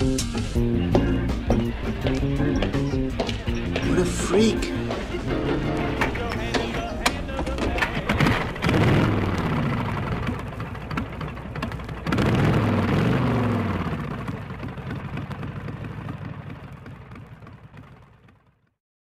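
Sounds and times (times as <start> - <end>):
low drone: 8.2 - 16.7.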